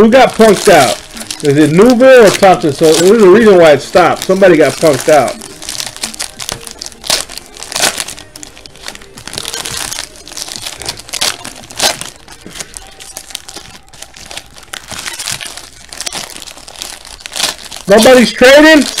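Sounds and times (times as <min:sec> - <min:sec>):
foil wrappers crinkling: 0:00.0 - 0:19.0.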